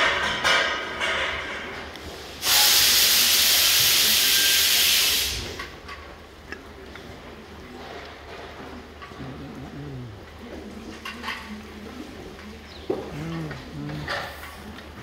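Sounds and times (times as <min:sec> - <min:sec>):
loud steady hiss: 0:02.0 - 0:05.8
low steady hum: 0:05.7 - 0:15.0.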